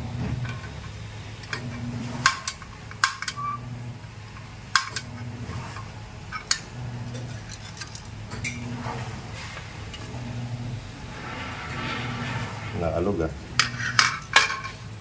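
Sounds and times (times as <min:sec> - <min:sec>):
low hum: 0:00.0 - 0:15.0
stove igniter clicking: 0:04.4 - 0:05.2.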